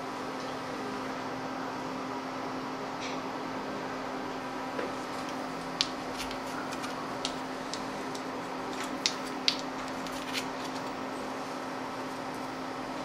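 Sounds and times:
wooden spoons clicking: 0:05.2 - 0:10.8.

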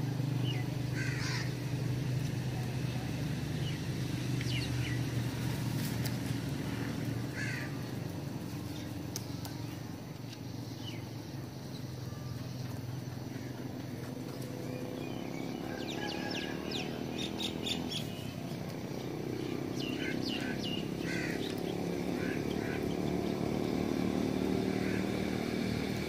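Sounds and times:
crows cawing: 0:00.9 - 0:01.6, 0:06.7 - 0:07.8, 0:20.0 - 0:21.5, 0:22.1 - 0:22.9, 0:24.7 - 0:25.3.

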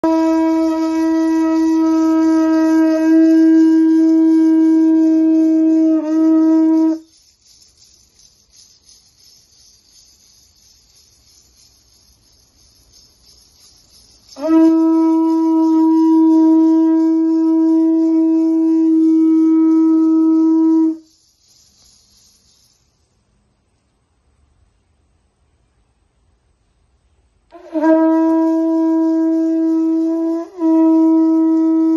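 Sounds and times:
conch shell trumpet blasts: 0:00.0 - 0:07.2, 0:14.3 - 0:21.0, 0:27.5 - 0:31.9.

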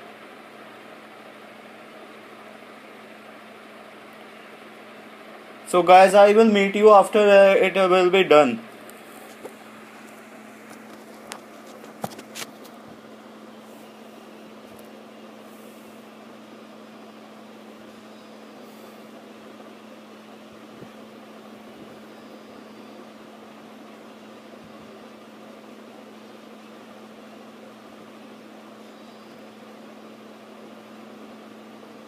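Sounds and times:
steady background hum: 0:00.0 - 0:32.0
even hiss: 0:17.2 - 0:24.0.

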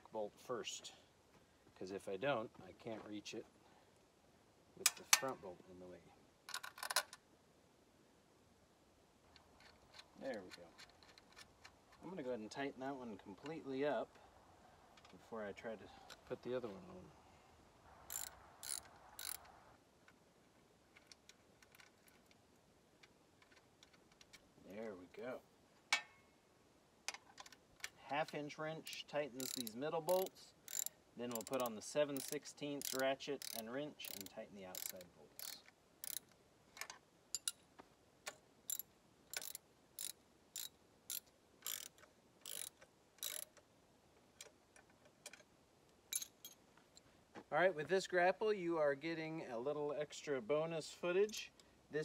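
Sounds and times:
small metallic clicks of hardware: 0:04.8 - 0:05.4, 0:06.5 - 0:07.2, 0:09.3 - 0:12.0, 0:18.1 - 0:20.2, 0:20.9 - 0:25.0, 0:27.1 - 0:37.6, 0:38.2 - 0:47.1
socket ratchet clicking: 0:18.1 - 0:19.5, 0:28.9 - 0:36.3, 0:37.4 - 0:37.6, 0:38.7 - 0:43.6.

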